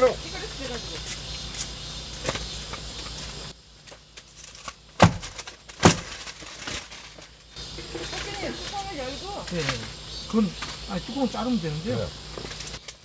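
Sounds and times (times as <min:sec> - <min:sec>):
sharp knocks: 0:05.0 - 0:06.2.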